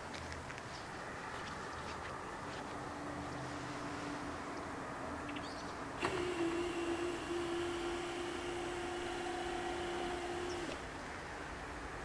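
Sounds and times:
barrier motor humming: 6.0s - 11.0s.

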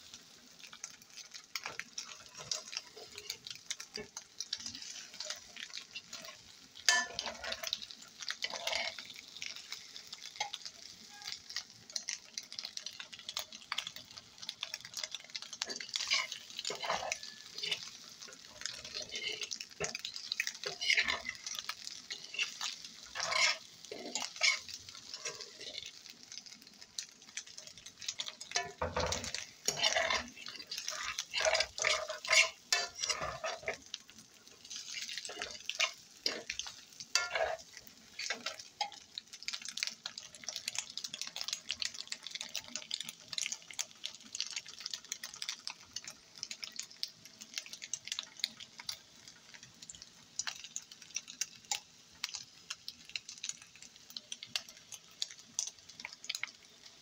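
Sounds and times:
light sizzle: 0.0s - 57.0s
fork scraping a frying pan: 1.6s - 7.8s, 8.4s - 9.1s, 15.6s - 17.9s, 18.6s - 26.1s, 28.4s - 33.8s, 34.6s - 37.6s, 38.2s - 39.0s.

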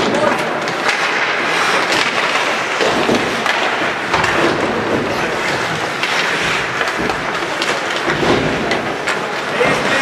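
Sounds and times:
skates scraping on ice: 0.0s - 10.0s
sticks knocking puck: 0.0s - 10.0s.

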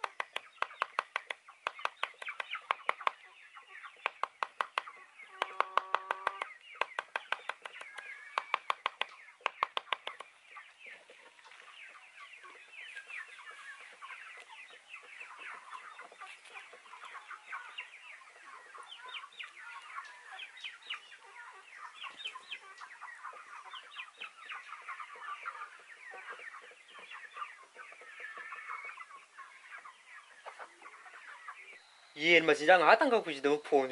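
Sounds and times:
chickens clucking and peeping: 0.0s - 33.9s.

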